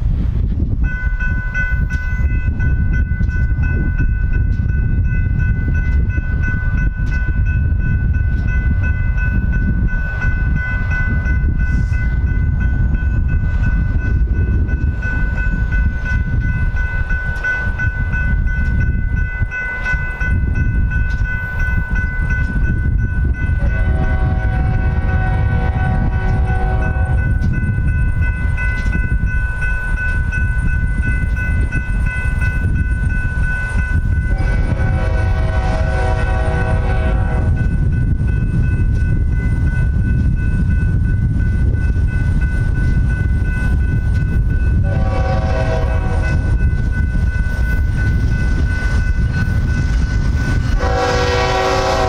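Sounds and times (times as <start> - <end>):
wind rumble on microphone: 0.0 - 52.0
railroad crossing bell ringing: 0.6 - 52.0
locomotive horn: 23.6 - 27.2, 34.3 - 37.6, 44.8 - 46.4, 50.8 - 52.0.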